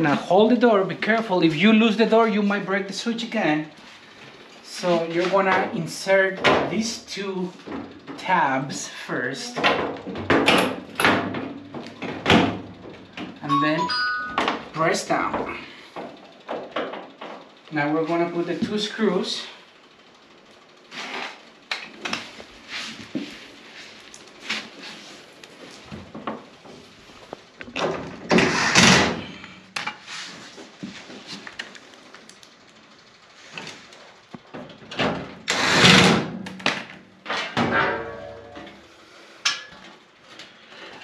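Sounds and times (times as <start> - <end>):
clatter on sheet-metal door: 9.6 - 13.4
rasping bursts: 35.5 - 36.1.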